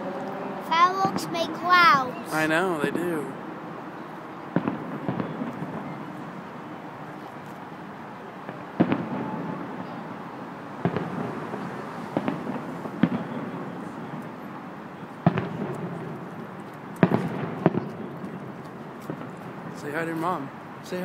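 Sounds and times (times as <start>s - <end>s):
fireworks booming with echo: 0.7s - 3.6s, 4.4s - 7.0s, 8.4s - 21.0s.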